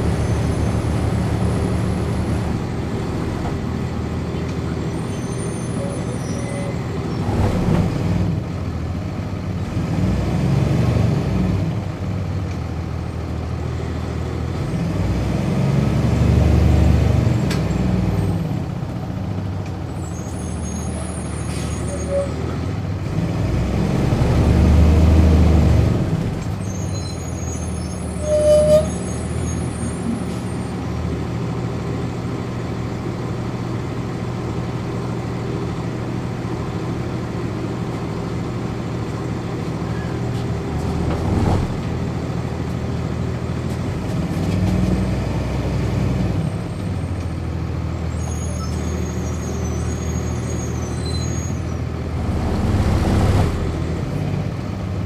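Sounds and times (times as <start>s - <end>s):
bus diesel engine drone: 0.0s - 55.0s
brief high squeak: 4.9s - 6.9s, 20.0s - 22.6s, 26.6s - 30.8s, 39.8s - 40.2s, 48.2s - 51.8s.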